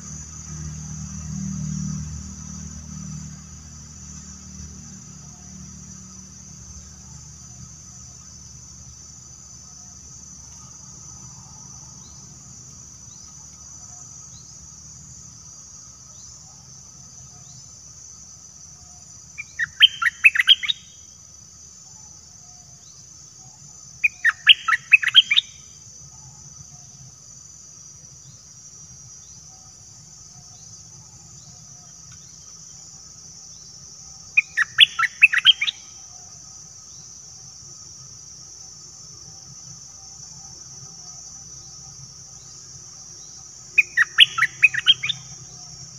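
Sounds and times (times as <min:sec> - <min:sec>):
bulbul singing: 0:19.4 - 0:21.0, 0:24.0 - 0:25.7, 0:34.4 - 0:36.1, 0:43.2 - 0:45.9.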